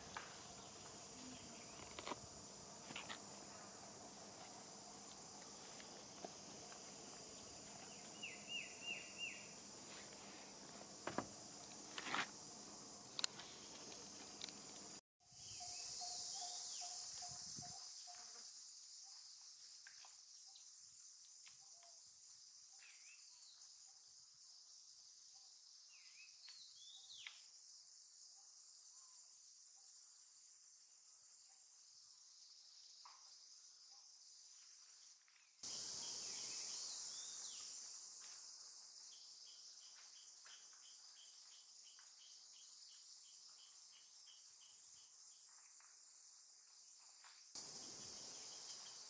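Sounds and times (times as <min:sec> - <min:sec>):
insects shrilling: 0:35.6 - 0:41.3.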